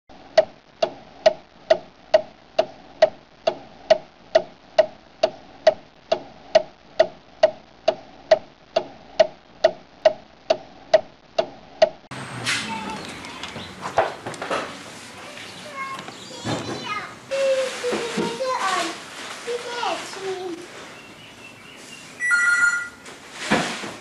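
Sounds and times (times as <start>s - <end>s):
clock ticking: 0.3s - 12.0s
rough background noise: 12.1s - 24.0s.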